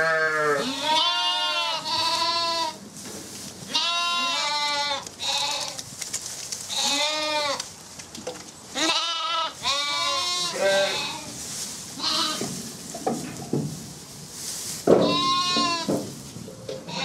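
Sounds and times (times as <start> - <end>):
sheep bleating: 0.0 - 2.8, 8.8 - 11.3.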